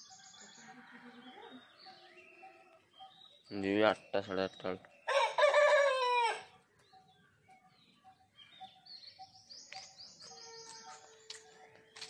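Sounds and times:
rooster crowing: 5.1 - 6.5.

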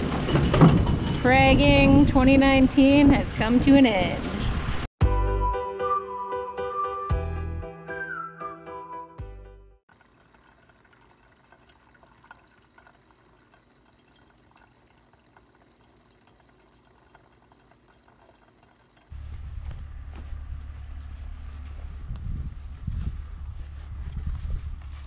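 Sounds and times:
coffee dripping into carafe: 9.9 - 19.1
steady low rumble: 19.1 - 25.0.

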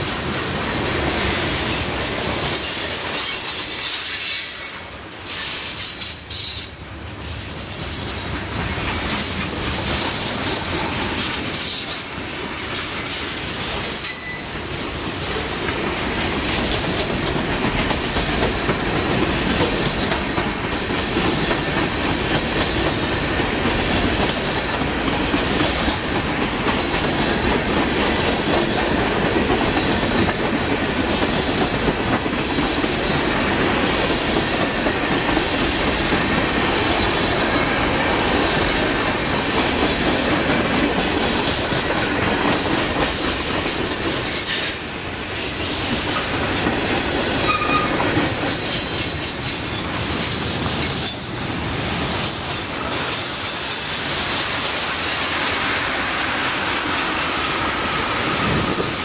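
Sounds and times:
train wheels clattering on rails: 0.0 - 59.0
wheel squeal: 2.6 - 6.6, 47.4 - 48.0.

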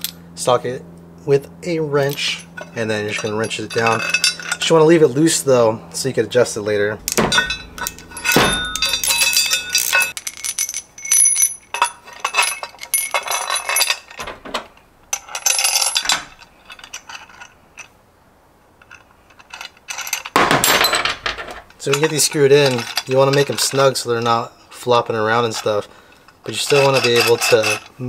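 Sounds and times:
metal bolts clinking: 2.0 - 5.1, 7.0 - 18.0, 18.8 - 28.0
tools set down: 7.0 - 17.5, 18.8 - 22.1.

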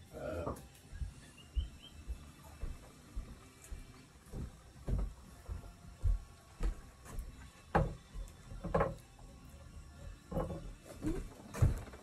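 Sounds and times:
dull footstep thumps: 1.0 - 8.0.

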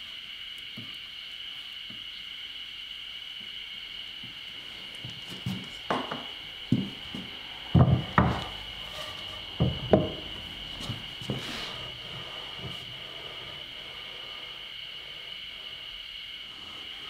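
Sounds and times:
steady high hum: 0.0 - 17.0
wooden boards knocking: 5.5 - 8.6, 9.6 - 11.5.

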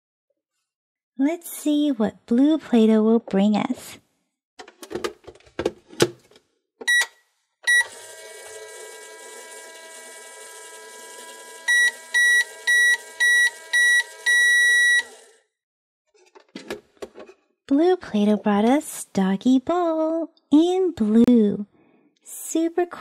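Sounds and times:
toy button beeps: 6.8 - 7.1, 11.7 - 15.1.

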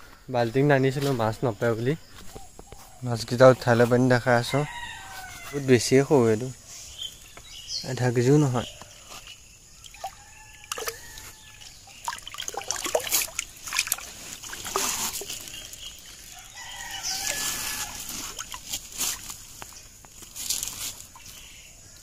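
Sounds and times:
rooster crowing: 4.3 - 6.0, 9.9 - 11.7, 16.3 - 18.4
shallow water splashing: 9.1 - 21.5.

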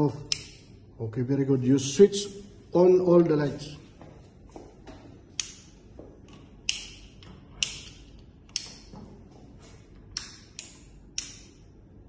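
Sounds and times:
light switches clicking: 0.2 - 0.7, 5.4 - 5.8, 6.6 - 8.9, 10.1 - 11.7.

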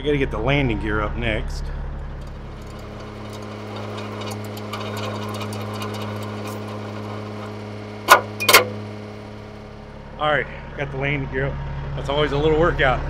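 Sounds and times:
truck engine idling: 0.1 - 13.0
hand crank clicking rapidly: 2.2 - 8.7.

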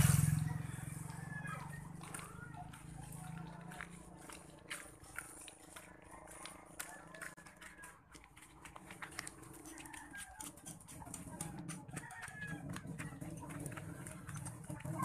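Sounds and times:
chickens clucking: 8.6 - 15.0.

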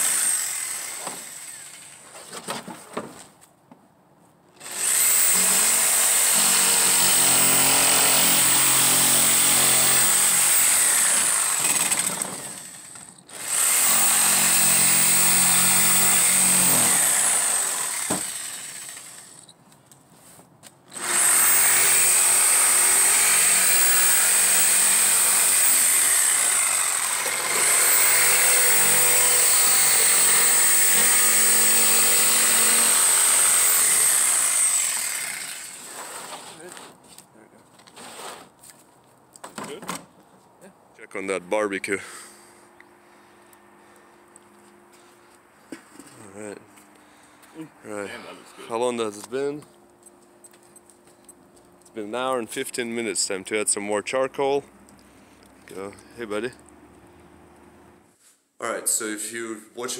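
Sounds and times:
jigsaw cutting wood: 0.0 - 2.0, 4.6 - 19.4, 20.9 - 36.1.

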